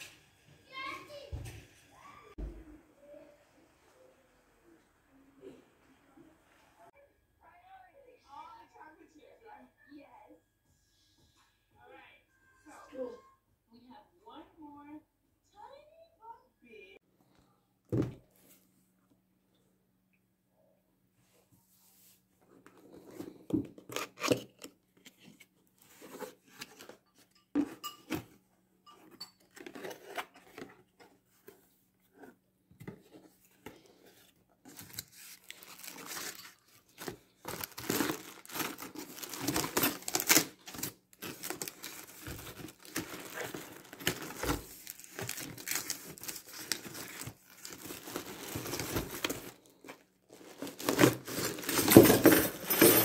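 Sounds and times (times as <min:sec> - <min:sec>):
cardboard and plastic crinkling: 0:32.9 - 0:53.0.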